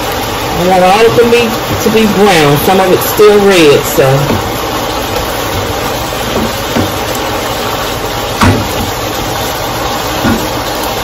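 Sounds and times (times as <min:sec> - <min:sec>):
meat sizzling in a wok: 0:00.0 - 0:11.0
knock: 0:08.4 - 0:08.9, 0:10.2 - 0:10.5.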